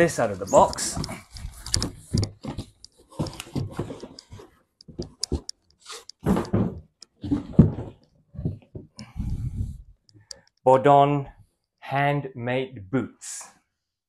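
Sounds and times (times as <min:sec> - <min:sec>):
cardboard knocks and thumps: 0:06.2 - 0:09.0.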